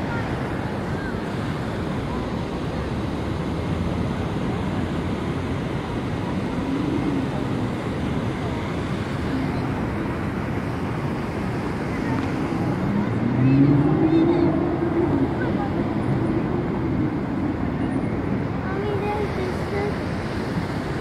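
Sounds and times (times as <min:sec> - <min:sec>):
city street traffic rumble: 0:00.0 - 0:21.0.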